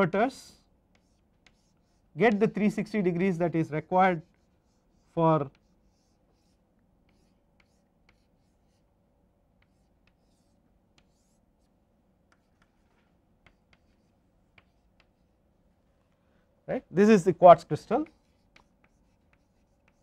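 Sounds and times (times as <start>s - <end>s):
chalk tapping on blackboard: 0.9s - 2.8s, 4.2s - 8.9s, 9.5s - 11.7s, 12.3s - 15.3s, 17.8s - 20.0s.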